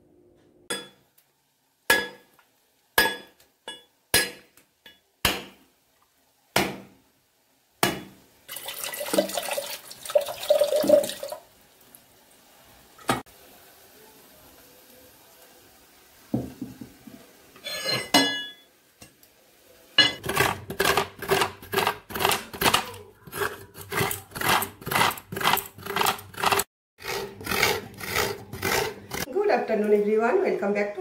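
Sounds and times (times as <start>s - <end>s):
water pouring into steel tumbler: 8.5s - 11.5s.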